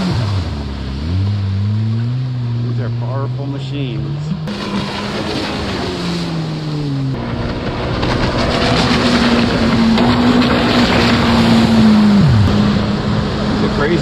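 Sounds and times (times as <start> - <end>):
personal watercraft engines: 0.0 - 14.0
rushing water spray: 4.5 - 7.2.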